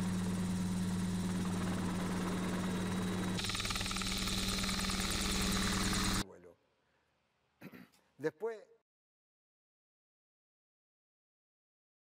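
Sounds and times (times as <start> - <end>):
helicopter engine and rotor: 0.0 - 6.2.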